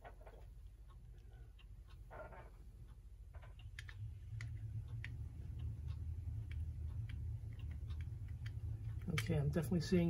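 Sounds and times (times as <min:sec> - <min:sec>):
low hum: 0:00.0 - 0:10.0
small metallic clicks and taps: 0:01.6 - 0:09.6.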